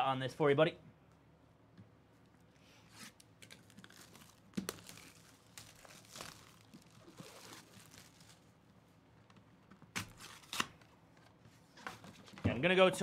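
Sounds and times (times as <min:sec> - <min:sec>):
plastic shrink wrap crinkling and tearing: 0:02.9 - 0:08.6
plastic wrap snapping: 0:03.2 - 0:08.5.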